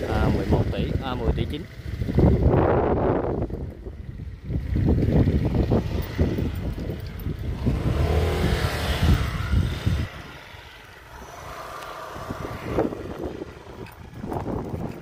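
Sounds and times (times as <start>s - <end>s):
wind buffeting microphone: 0.0s - 15.0s
vehicle passing close by: 4.8s - 15.0s.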